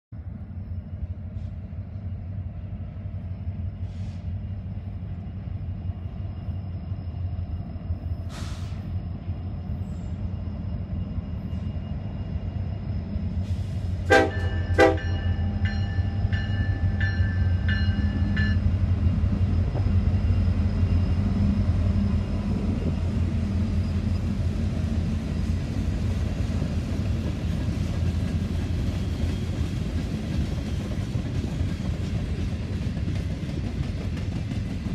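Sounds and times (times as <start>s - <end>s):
diesel locomotives rumbling: 0.2s - 34.9s
train horn toots: 14.0s - 15.7s.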